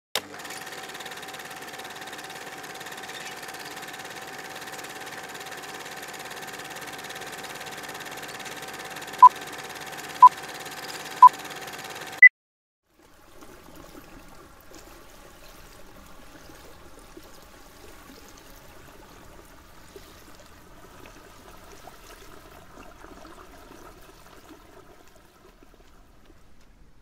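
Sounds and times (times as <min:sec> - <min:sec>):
film projector whirring: 0:00.2 - 0:12.2.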